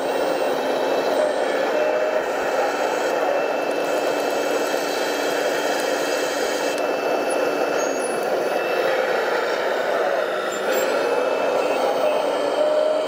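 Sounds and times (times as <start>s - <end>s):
machine engine drone: 0.0s - 13.0s.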